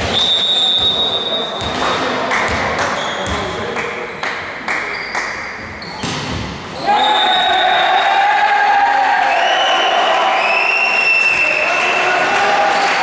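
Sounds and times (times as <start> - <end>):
referee's whistle blowing: 0.0 - 1.8, 6.8 - 8.2, 9.2 - 12.2
volleyball bouncing on court: 0.0 - 3.7, 4.8 - 6.8.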